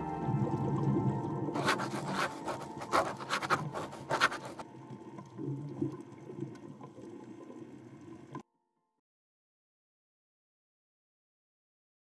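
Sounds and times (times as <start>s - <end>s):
low underwater rumble: 0.0s - 2.2s.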